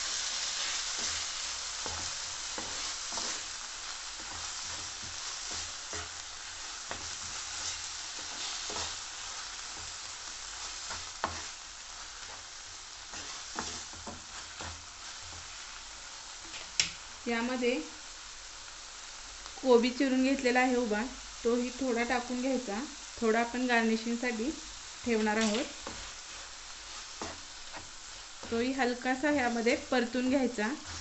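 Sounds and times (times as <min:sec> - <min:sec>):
vegetables sizzling in frying pan: 0:00.0 - 0:31.0
spatula knocking and scraping pan: 0:00.9 - 0:03.5, 0:04.2 - 0:11.6, 0:12.2 - 0:15.5, 0:25.0 - 0:29.6, 0:30.3 - 0:31.0.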